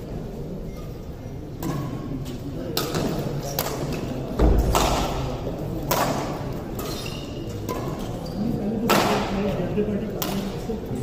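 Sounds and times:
racket striking shuttlecock: 2.8 - 8.1.

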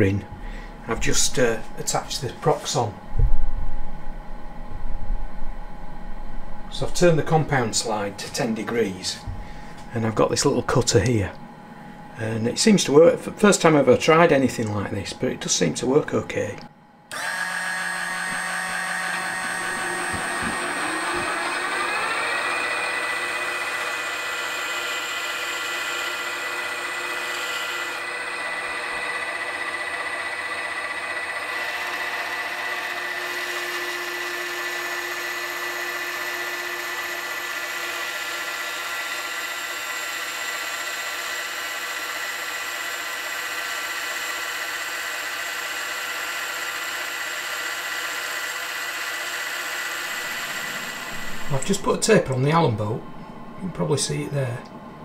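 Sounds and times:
rotary tool and lathe whining: 17.1 - 53.6.

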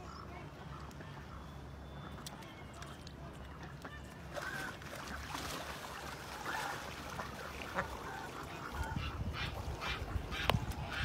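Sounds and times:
ducks quacking: 6.3 - 11.0.

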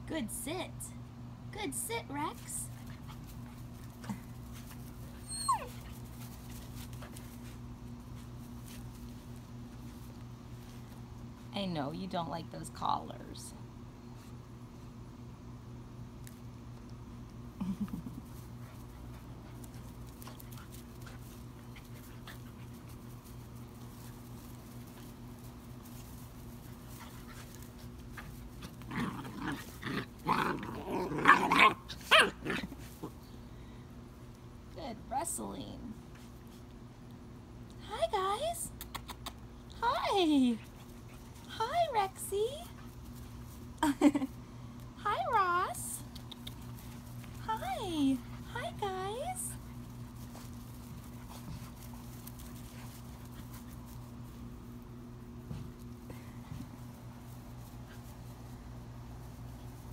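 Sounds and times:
steady low hum: 0.0 - 59.9
puppy whining: 5.1 - 6.0
puppies growling: 28.5 - 33.2.

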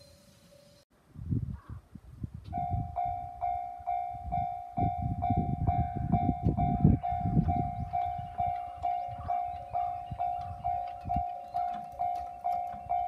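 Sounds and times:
level crossing warning bell: 2.6 - 13.0.

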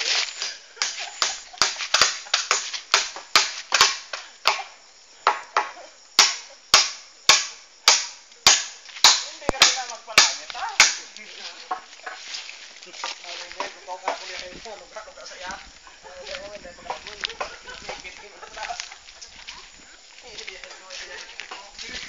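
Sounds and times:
sharp loud knocks: 1.2 - 4.6.

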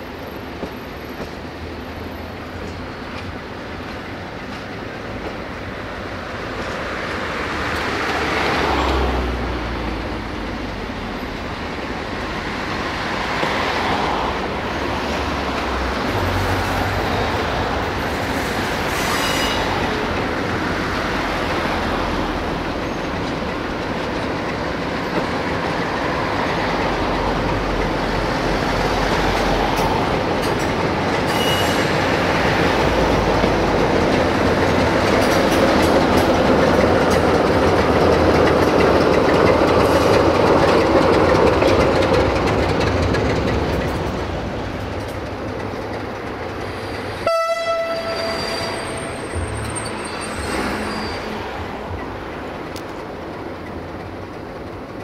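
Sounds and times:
wheels rumbling over rails: 0.3 - 55.0
locomotive engine running: 32.1 - 47.3
train horn blast: 47.2 - 49.5.

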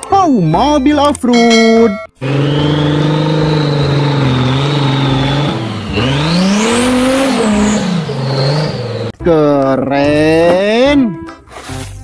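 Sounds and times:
car engine revving: 2.2 - 9.2.

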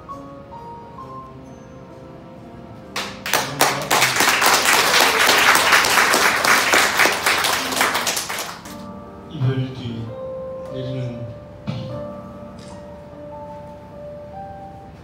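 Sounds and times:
soft background music: 0.0 - 15.0
audience applause: 3.0 - 8.8.

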